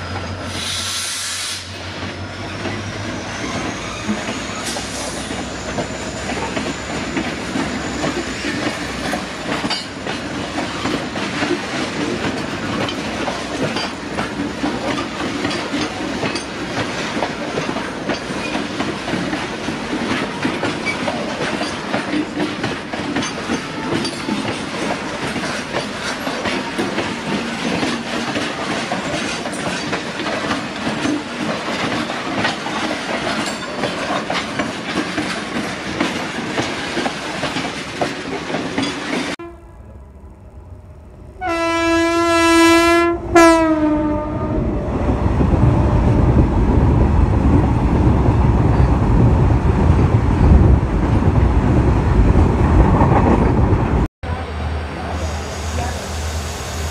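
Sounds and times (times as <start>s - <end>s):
train rumbling past: 0.0s - 56.9s
wagon wheels clickety-clack: 6.2s - 39.4s
locomotive horn: 23.5s - 24.3s, 39.4s - 40.0s, 41.4s - 44.8s.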